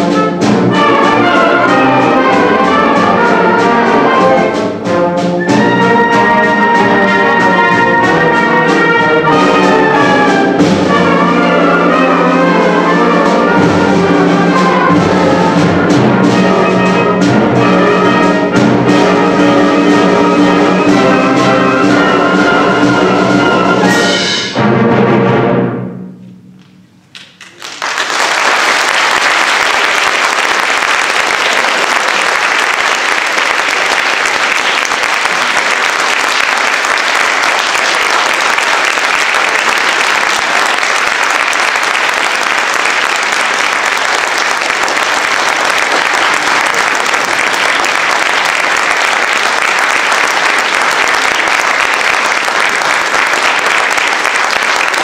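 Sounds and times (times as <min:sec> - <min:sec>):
wind band playing: 0:00.0 - 0:26.2, 0:29.1 - 0:55.0
audience applauding: 0:27.2 - 0:55.0.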